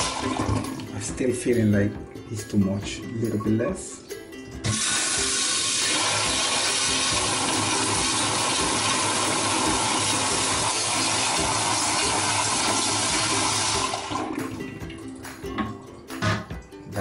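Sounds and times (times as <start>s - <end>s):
toilet flushing: 0.0s - 1.0s, 4.6s - 16.4s.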